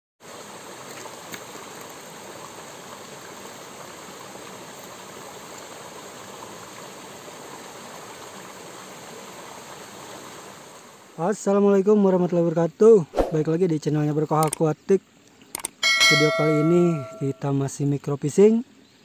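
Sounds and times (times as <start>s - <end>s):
stream splashing over rocks: 0.2s - 11.2s.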